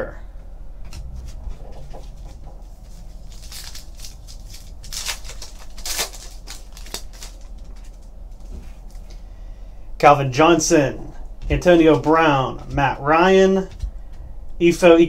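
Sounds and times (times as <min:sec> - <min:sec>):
foil wrapper tearing and crinkling: 0:02.7 - 0:09.0.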